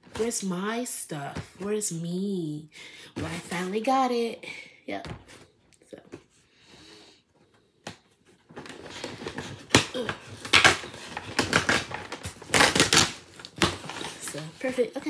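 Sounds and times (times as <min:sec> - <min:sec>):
packaging crackling and rustling: 0:08.4 - 0:15.0.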